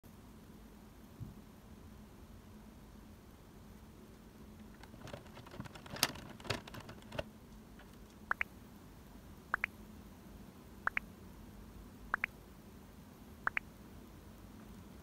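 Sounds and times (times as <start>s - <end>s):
plastic parts clicking and rattling: 4.8s - 8.0s.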